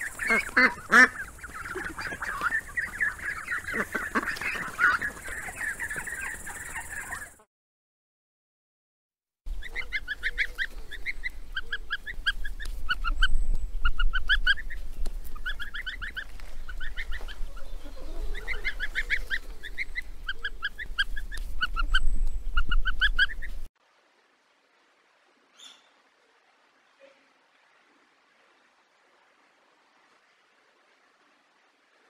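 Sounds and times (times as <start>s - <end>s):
songbird calling: 0.0s - 7.5s, 9.5s - 23.7s, 25.5s - 26.0s.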